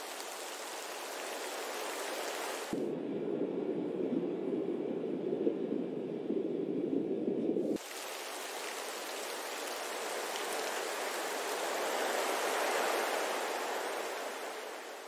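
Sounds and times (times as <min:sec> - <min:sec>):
water rushing: 0:00.0 - 0:02.8, 0:07.8 - 0:15.0.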